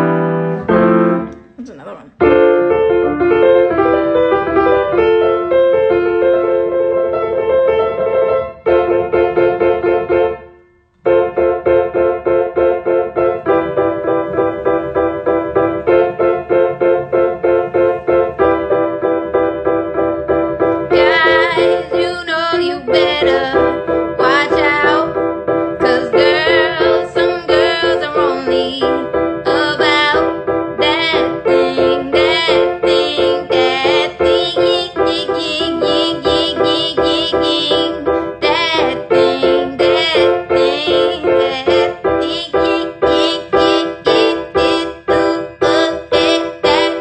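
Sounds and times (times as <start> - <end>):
keyboard chords: 0.0 - 47.0
person singing: 20.9 - 25.2, 25.8 - 47.0.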